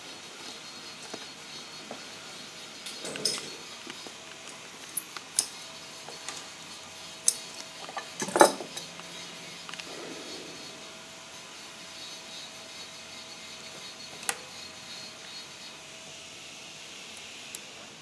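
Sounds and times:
metallic clinks and clicks: 2.9s - 3.6s, 4.9s - 5.7s, 7.2s - 8.9s.

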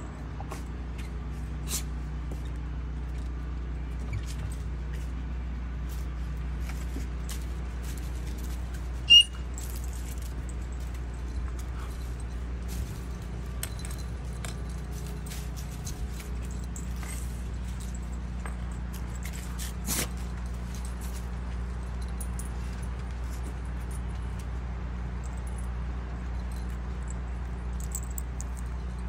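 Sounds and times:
low background rumble: 0.0s - 29.0s
collar tag jingling: 6.7s - 29.0s
puppy squeak: 9.1s - 9.4s.

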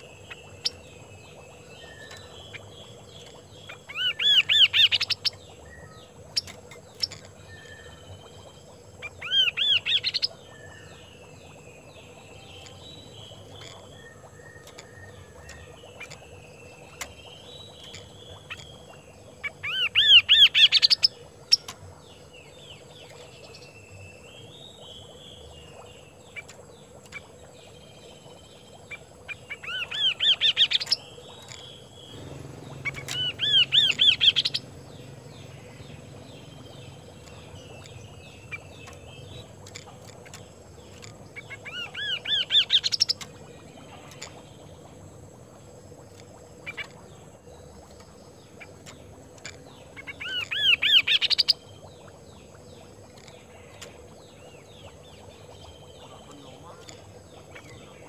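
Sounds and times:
soft twittering chatter: 0.0s - 58.0s
bird singing rising notes: 29.8s - 39.7s.

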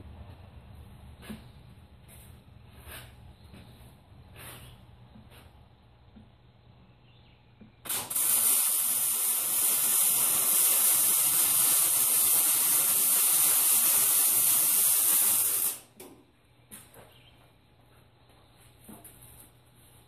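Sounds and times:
welding arc: 7.8s - 16.0s.

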